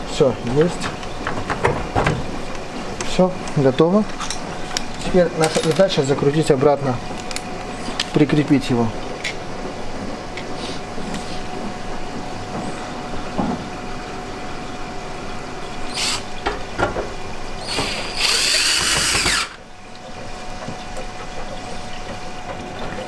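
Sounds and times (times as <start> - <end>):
tool handling clicks and knocks: 3.0 - 6.0
cordless drill driving a screw: 17.6 - 19.6.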